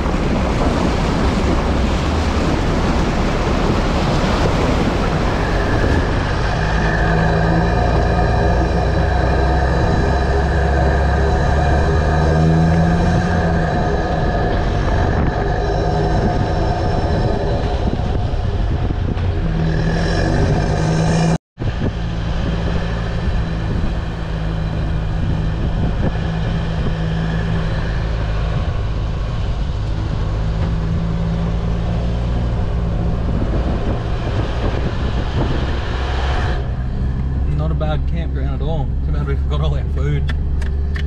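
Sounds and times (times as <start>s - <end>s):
road and rattle noise: 0.0s - 41.0s
vehicle engine drone: 0.0s - 41.0s.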